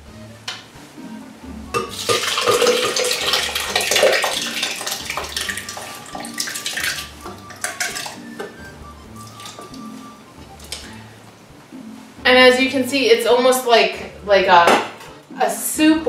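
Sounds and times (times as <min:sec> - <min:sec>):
thick congee pouring and slopping: 0:02.0 - 0:08.3, 0:09.1 - 0:09.8.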